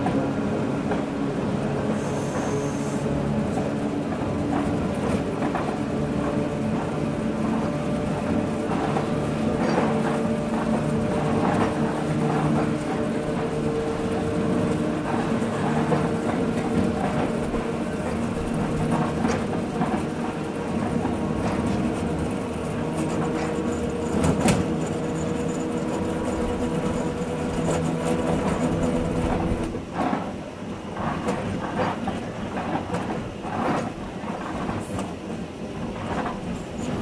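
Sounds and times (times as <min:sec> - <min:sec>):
train mechanical hum: 0:00.0 - 0:37.0
wheels clacking over track: 0:00.0 - 0:37.0.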